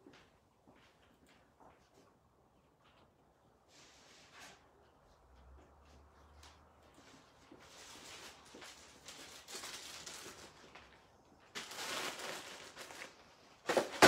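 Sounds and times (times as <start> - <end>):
paper and plastic rustling: 7.0 - 14.0.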